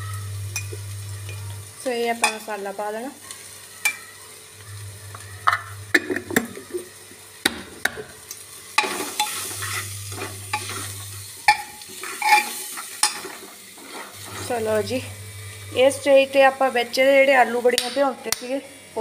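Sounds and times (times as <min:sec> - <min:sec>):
oil sizzling: 0:00.0 - 0:19.0
metal ladle scraping a pot: 0:08.8 - 0:14.6.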